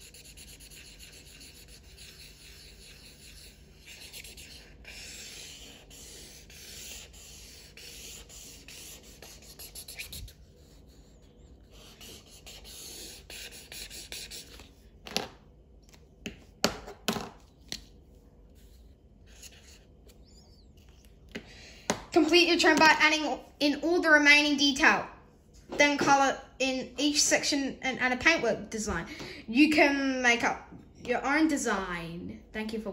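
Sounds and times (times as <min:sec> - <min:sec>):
marker scribbling on paper: 0:00.0 - 0:14.8.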